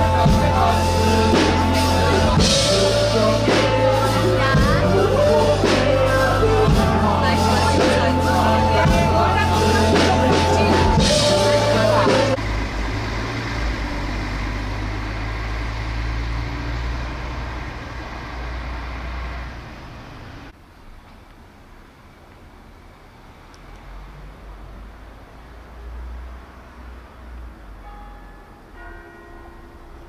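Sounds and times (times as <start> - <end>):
music with drums and heavy bass: 0.0 - 12.4
crowd chatter: 0.0 - 13.0
low rumble of distant traffic: 0.0 - 30.0.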